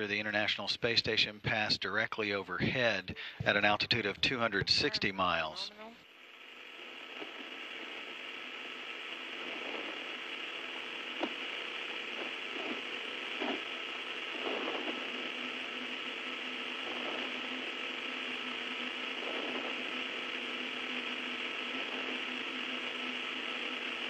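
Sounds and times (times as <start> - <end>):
radio channel hiss: 0.0 - 24.0
faint clicks and crackles: 6.0 - 24.0.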